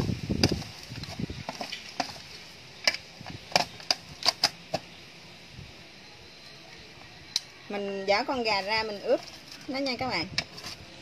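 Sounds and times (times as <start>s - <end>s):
metal spoon scraping steel tray: 9.1s - 11.0s.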